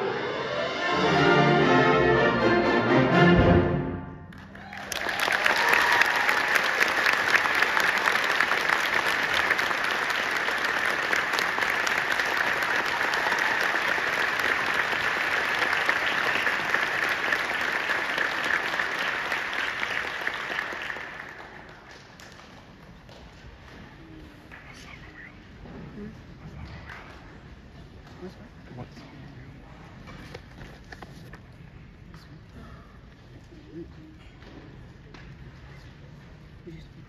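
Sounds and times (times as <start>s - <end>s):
audience applauding: 4.3s - 22.6s.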